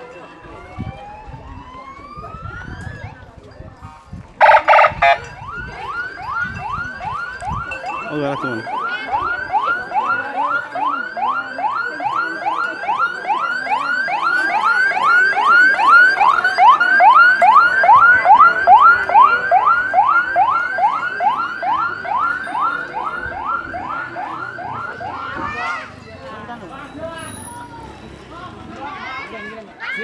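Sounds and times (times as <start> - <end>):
electronic siren yelping: 4.4 - 25.7.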